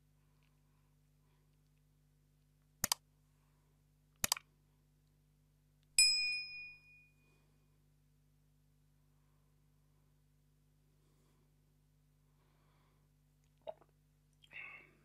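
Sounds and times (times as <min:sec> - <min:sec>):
mouse clicks: 0:02.8 - 0:03.0, 0:04.2 - 0:04.4
bright bell ding: 0:06.0 - 0:07.3.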